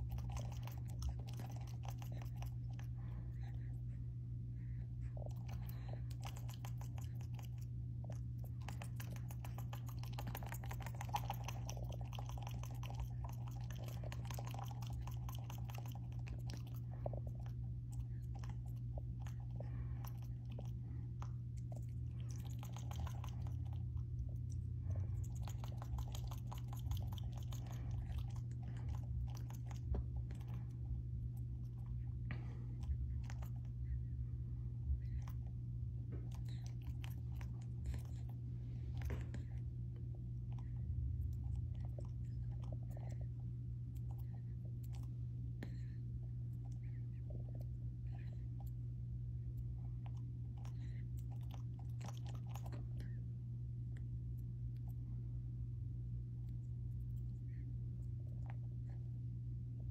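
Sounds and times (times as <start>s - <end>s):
steady low hum: 0.0s - 59.9s
monkey chewing wet clicks: 5.1s - 33.7s.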